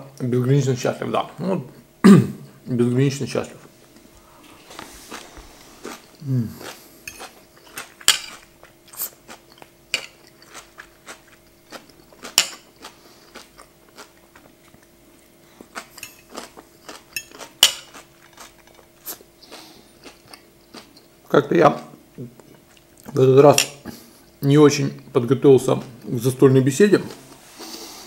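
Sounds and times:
low hum of pleasure: 0.0 - 28.0
person chewing food: 3.8 - 23.2
cutlery clinking on a plate: 17.1 - 18.0.

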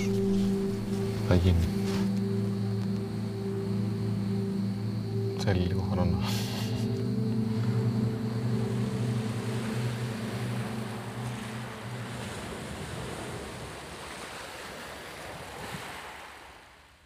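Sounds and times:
held low chord: 0.0 - 13.7
sea surf rushing: 5.8 - 16.7.

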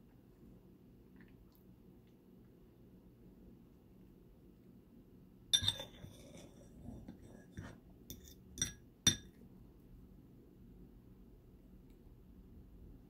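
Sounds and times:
fork clinking on ceramic plate: 5.6 - 6.6, 7.6 - 9.4.

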